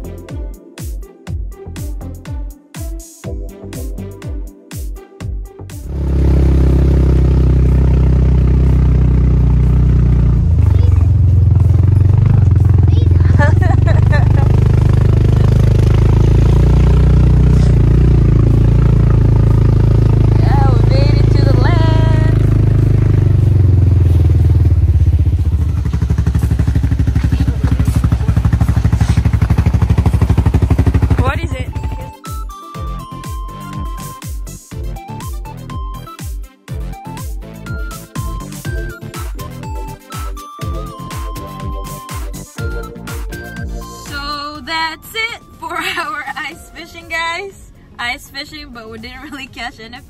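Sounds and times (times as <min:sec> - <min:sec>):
engine running with low drone: 0:05.7 - 0:32.2, 0:36.7 - 0:47.2.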